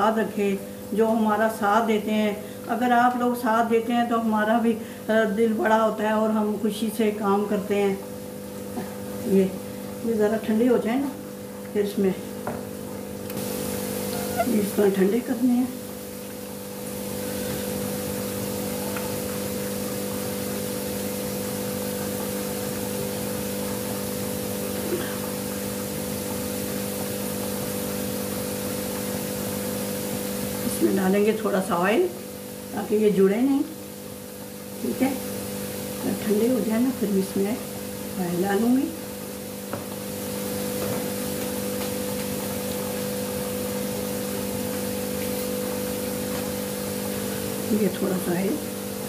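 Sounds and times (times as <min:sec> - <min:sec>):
electric motor humming: 0:13.2 - 0:31.3.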